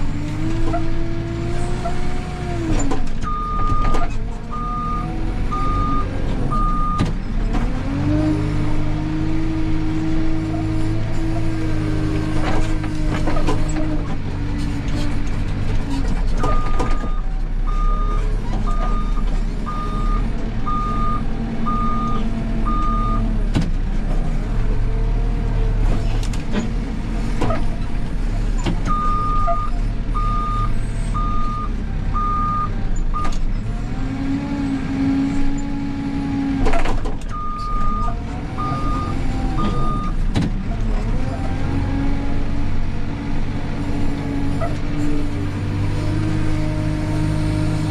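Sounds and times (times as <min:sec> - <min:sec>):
diesel engine running under load: 0:00.0 - 0:47.9
reversing alarm beeping: 0:16.5 - 0:23.2, 0:28.9 - 0:33.3, 0:37.3 - 0:40.1.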